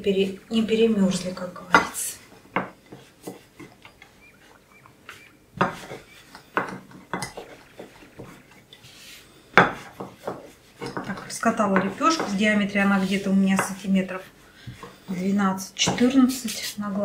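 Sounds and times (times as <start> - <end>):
rolling pin knocking on table: 5.6 - 7.6.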